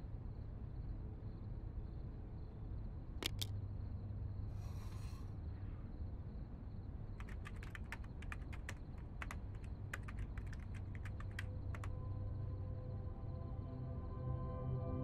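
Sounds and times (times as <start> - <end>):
typing on computer keyboard: 3.2 - 3.5, 7.2 - 11.9
soft sustained music tones: 11.0 - 15.0.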